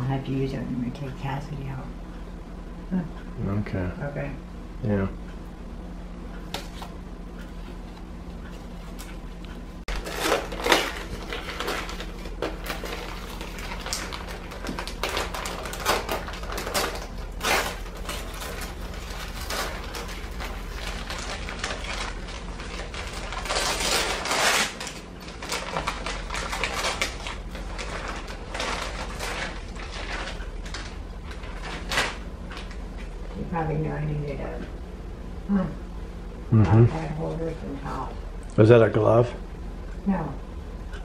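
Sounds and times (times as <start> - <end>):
wrapping paper crinkling: 6.7 - 33.4.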